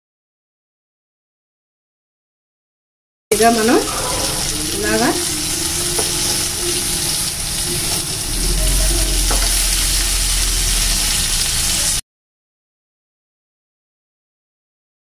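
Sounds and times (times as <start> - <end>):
fish sizzling in oil: 3.3 - 12.0.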